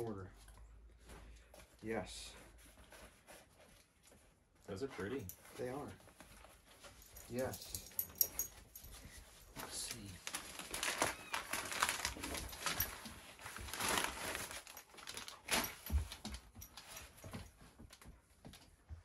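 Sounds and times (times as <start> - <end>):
paper mailer rustling and tearing: 9.6 - 15.8.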